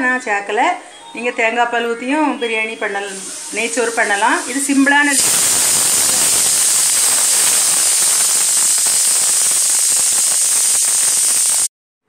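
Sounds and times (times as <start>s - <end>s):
loud steady hiss: 2.3s - 11.7s.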